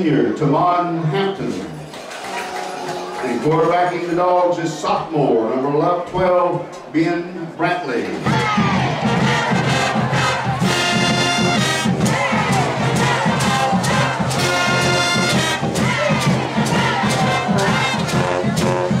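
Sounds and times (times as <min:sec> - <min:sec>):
marching drum beat: 0:08.3 - 0:19.0
brass sustained notes: 0:08.9 - 0:19.0.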